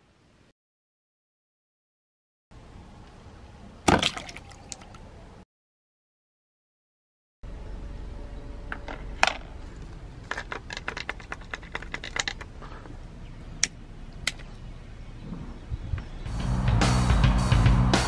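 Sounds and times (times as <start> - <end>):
outdoor background noise: 0.0 - 0.5, 2.5 - 5.4, 7.4 - 18.0
music with guitar and drums: 16.3 - 18.0.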